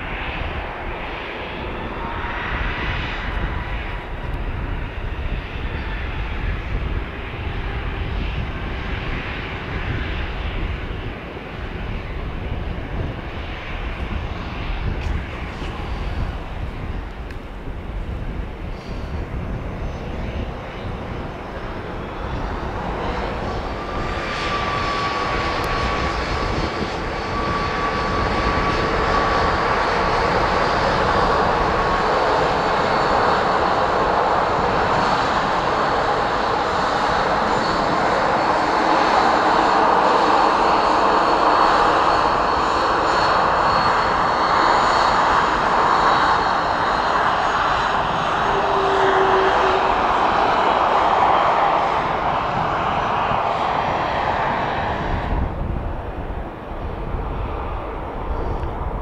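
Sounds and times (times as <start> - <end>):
jet engines passing: 0.0 - 59.0
thin engine whine: 0.1 - 59.0.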